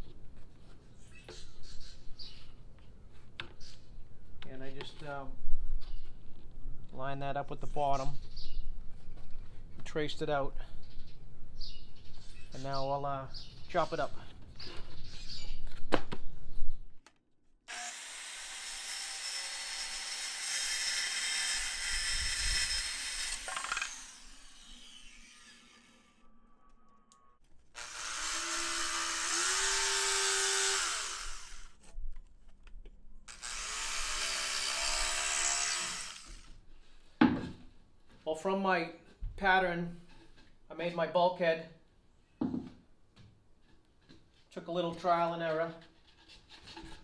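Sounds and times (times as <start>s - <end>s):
electric saw cutting plywood: 17.7s - 26.3s, 27.8s - 31.8s, 33.3s - 36.5s.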